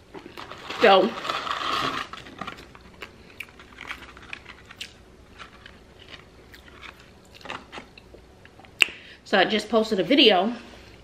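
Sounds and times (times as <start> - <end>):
person chewing crunchy food: 1.4 - 8.7.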